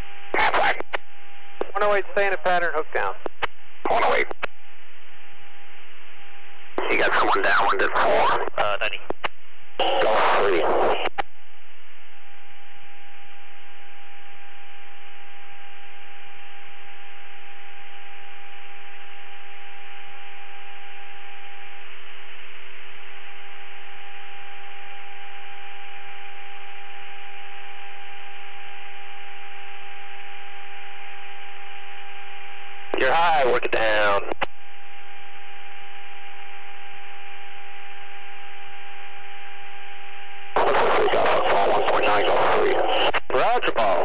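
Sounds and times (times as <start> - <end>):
electrical hum and hiss: 0.0 - 44.0
radio speech: 0.3 - 1.0, 1.6 - 4.5, 6.8 - 11.2, 32.9 - 34.5, 40.6 - 44.0.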